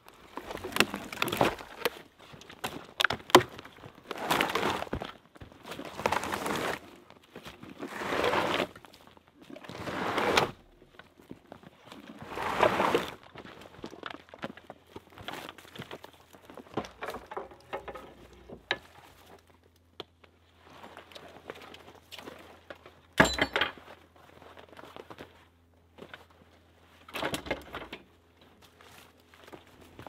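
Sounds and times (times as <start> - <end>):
dry brush rustling and crunching: 0.0 - 10.2, 10.8 - 16.8, 28.4 - 30.0.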